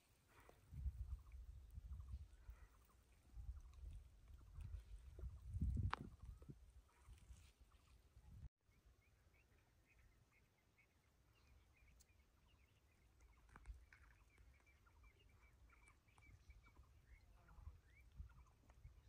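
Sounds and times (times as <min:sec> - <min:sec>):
faint rapid chirping: 0:08.7 - 0:19.0.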